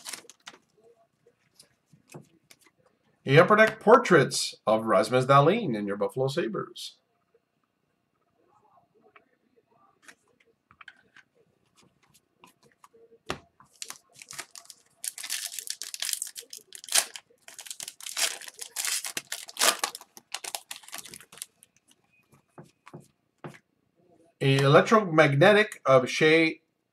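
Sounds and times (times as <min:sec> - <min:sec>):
foil wrapper tearing and crinkling: 0:00.0 - 0:00.5, 0:13.8 - 0:21.6.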